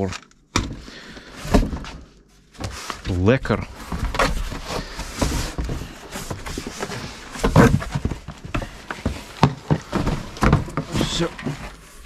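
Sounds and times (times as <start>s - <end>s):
cardboard and plastic rustling: 0.0s - 12.0s.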